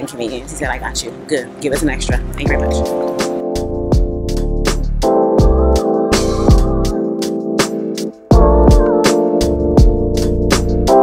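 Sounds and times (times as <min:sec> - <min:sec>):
synth music with steady beat: 0:00.0 - 0:11.0
deep kick drum: 0:02.1 - 0:02.8, 0:03.7 - 0:05.8, 0:08.3 - 0:09.0.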